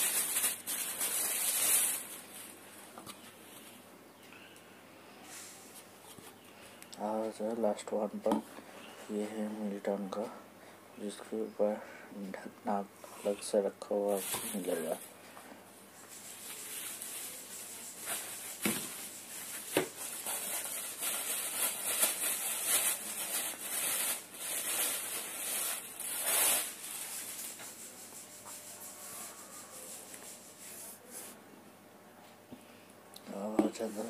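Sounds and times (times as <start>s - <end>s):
rustling of things handled: 0.0s - 3.8s, 13.1s - 31.4s, 33.3s - 34.0s.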